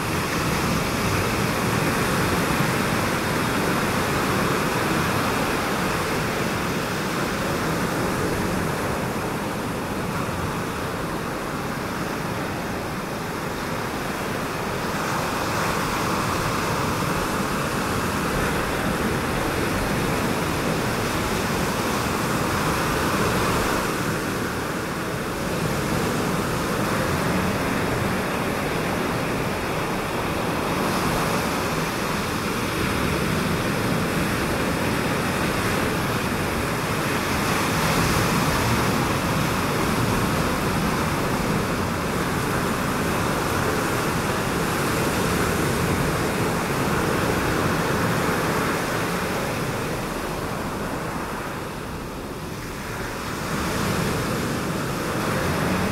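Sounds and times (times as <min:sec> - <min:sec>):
ocean surf breaking: 0:00.0 - 0:55.9.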